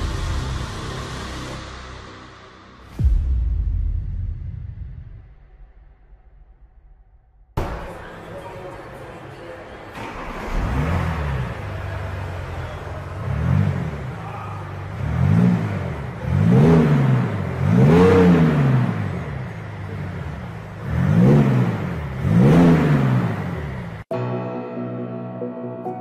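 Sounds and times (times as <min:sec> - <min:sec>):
music: 0:00.0 - 0:06.0, 0:24.1 - 0:26.0
car engine revving: 0:07.6 - 0:24.1.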